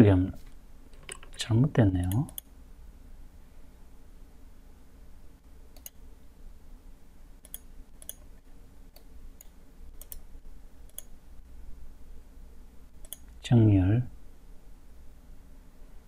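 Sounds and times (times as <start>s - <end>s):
low steady hum: 0.0s - 16.0s
mouse buttons clicking: 5.8s - 6.0s, 7.4s - 8.3s, 10.9s - 11.1s.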